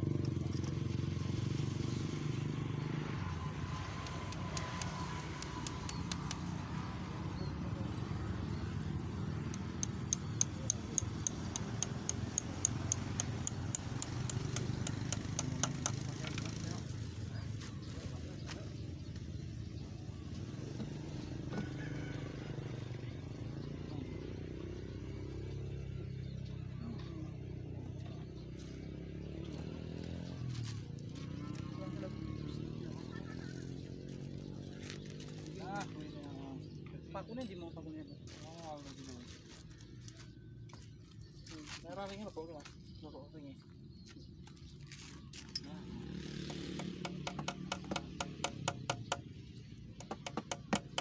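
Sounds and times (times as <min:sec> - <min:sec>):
vehicle engine running: 0:00.0 - 0:36.8, 0:44.2 - 0:51.0.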